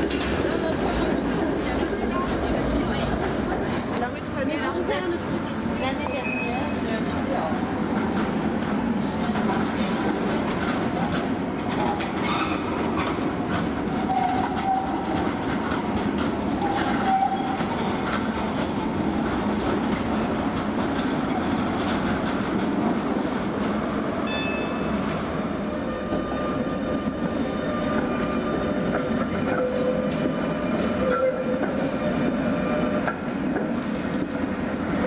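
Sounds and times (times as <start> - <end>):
tram wheels rumbling on rails: 0.0 - 35.0.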